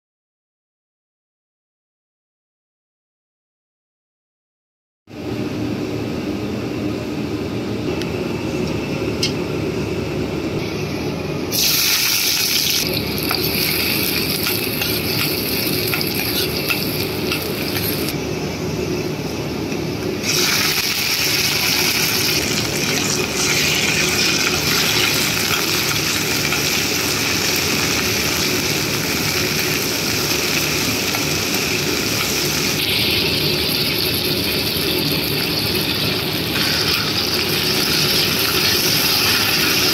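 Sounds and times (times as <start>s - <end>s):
chicken sizzling in oil: 11.5s - 18.1s, 20.2s - 39.9s.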